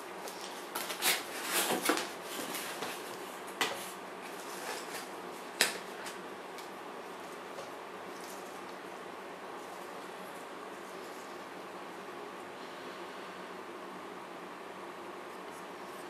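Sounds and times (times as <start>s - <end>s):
cardboard scraping and rustling: 0.3s - 5.1s.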